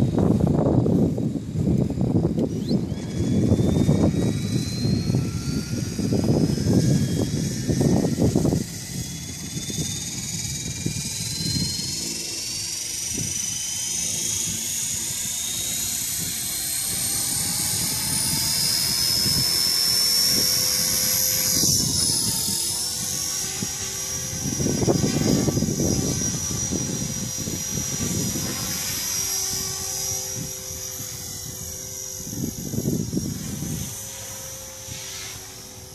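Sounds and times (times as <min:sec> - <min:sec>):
model airplane motor whining: 0:00.0 - 0:35.9
wind noise on microphone: 0:00.0 - 0:35.9.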